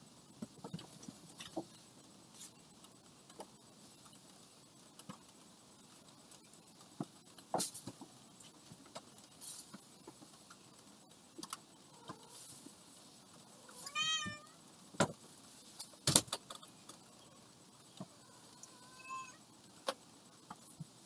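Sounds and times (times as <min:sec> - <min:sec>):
cat meowing: 0:13.7 - 0:14.6, 0:18.2 - 0:19.4.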